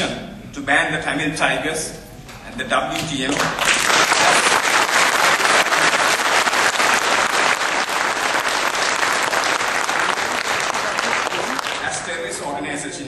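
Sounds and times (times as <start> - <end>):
audience applauding: 3.3 - 12.2.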